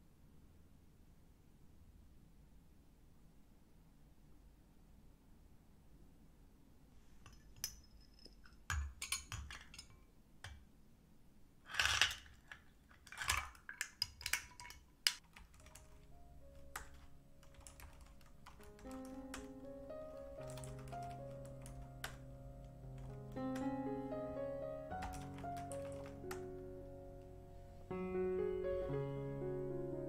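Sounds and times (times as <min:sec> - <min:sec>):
laptop keys typing: 0:13.9 - 0:26.6
light background music: 0:15.5 - 0:30.0.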